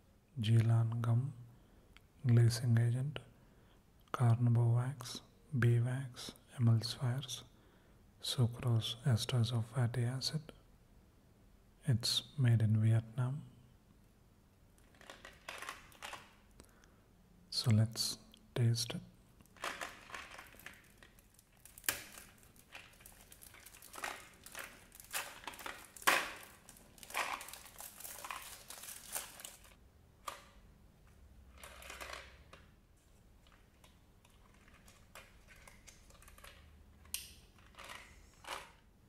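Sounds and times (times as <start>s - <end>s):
plastic wrap crinkling: 14.8s - 16.5s, 19.5s - 29.8s, 33.4s - 36.8s.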